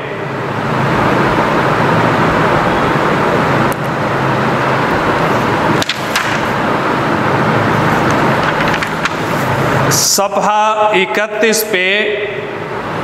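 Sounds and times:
steady loud background noise: 0.0 - 13.0
book page rustling and turning: 5.8 - 6.6, 7.8 - 9.8.

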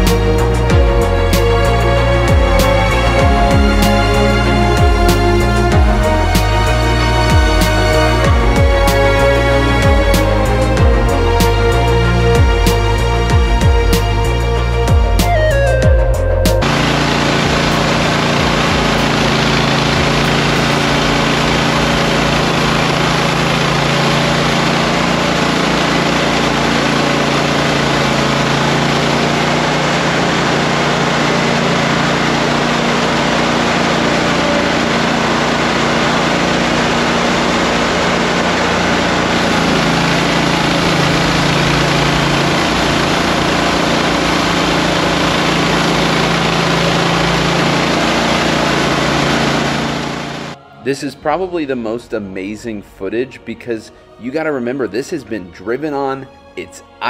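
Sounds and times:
engine running under load: 0.0 - 57.0
power broom sweeping icy snow: 16.5 - 50.6.

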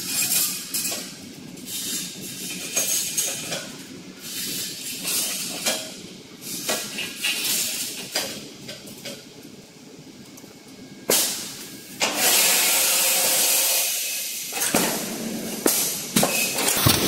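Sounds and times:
mechanical hum: 0.0 - 17.0
hiss bursts: 11.1 - 14.7.

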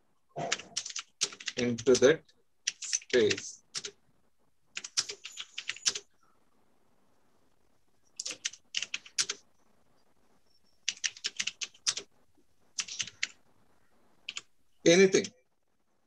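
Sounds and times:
typing on computer keyboard: 0.4 - 4.0, 4.7 - 6.1, 8.2 - 9.4, 10.8 - 12.1, 12.8 - 13.4, 14.3 - 14.5.

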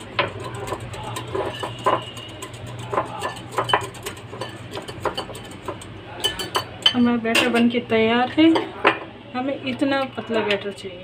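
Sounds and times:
whisk clicking against glass bowl: 0.0 - 7.6.

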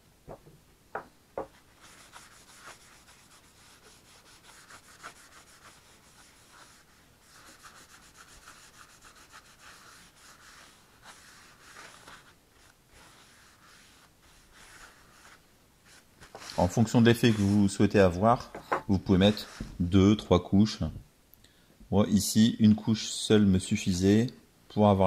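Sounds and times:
cloth rubbing on wood: 1.4 - 17.9, 19.1 - 19.8.

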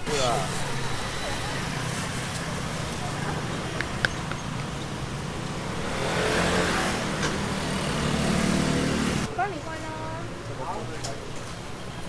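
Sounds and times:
busy street-food stall rumble: 0.0 - 12.0.

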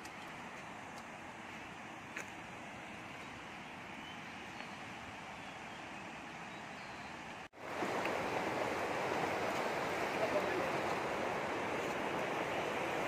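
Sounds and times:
river water rushing: 0.1 - 13.0.

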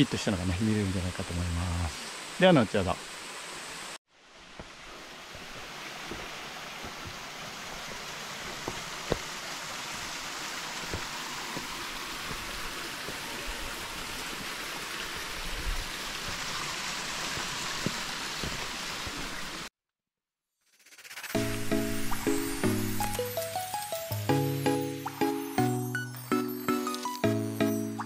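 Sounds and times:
mountain stream rushing: 0.0 - 19.7.

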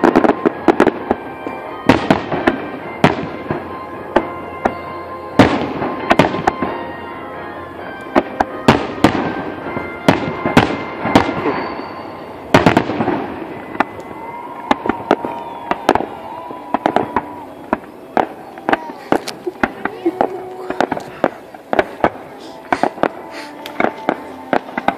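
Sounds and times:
firework shells bursting: 8.0 - 24.9.

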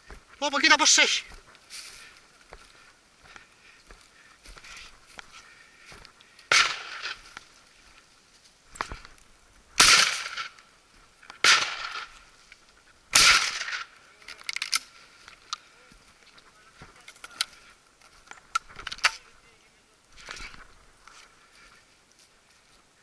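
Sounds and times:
shotgun shots: 6.5 - 7.2, 9.8 - 10.5, 11.4 - 12.1, 13.1 - 13.9.

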